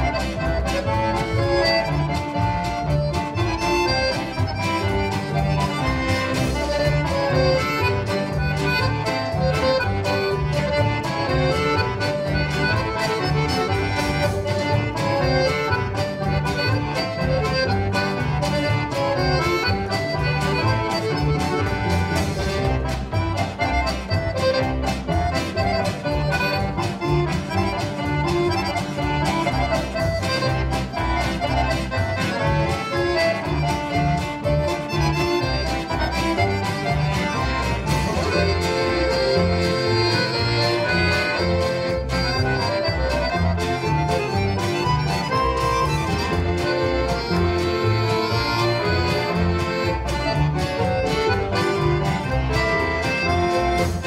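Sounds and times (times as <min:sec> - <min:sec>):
accordions playing polka: 0:00.0 - 0:54.0
bass: 0:00.0 - 0:54.0
guitar: 0:00.0 - 0:54.0
drum kit steady beat: 0:16.8 - 0:34.9, 0:35.7 - 0:39.8.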